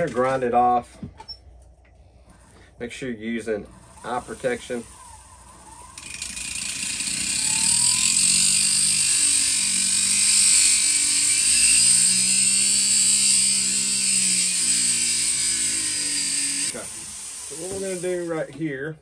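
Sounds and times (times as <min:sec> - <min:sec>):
cutoff wheel grinding metal: 0:03.4 - 0:18.4
rotary tool motor hum: 0:03.5 - 0:18.4.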